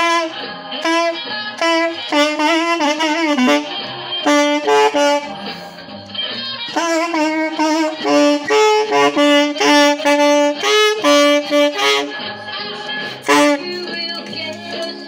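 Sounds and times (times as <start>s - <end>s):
saxophone solo: 0.0s - 5.6s, 6.7s - 12.4s, 13.0s - 14.0s.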